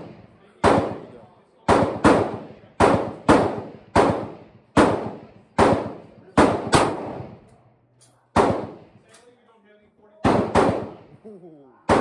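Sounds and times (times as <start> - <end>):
gunshots with long echo: 0.0 - 7.5, 8.3 - 9.0, 10.2 - 11.2.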